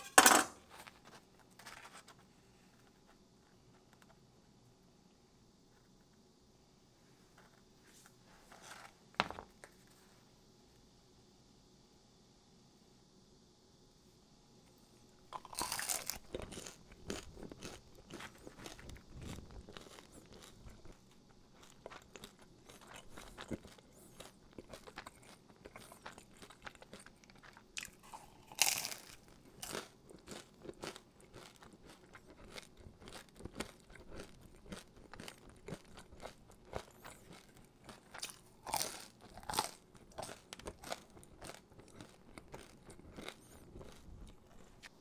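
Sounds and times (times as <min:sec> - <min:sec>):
person crunching crusty bread: 0:15.4 - 0:45.0.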